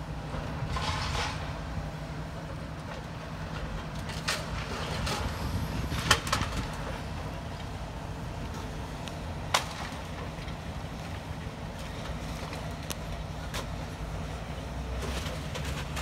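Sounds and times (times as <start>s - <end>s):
excavator engine rumbling: 0.0s - 16.0s.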